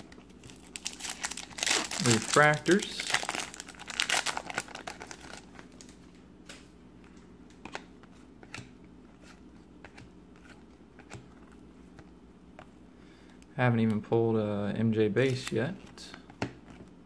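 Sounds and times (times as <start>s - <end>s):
foil wrapper crinkling: 0.0s - 6.0s.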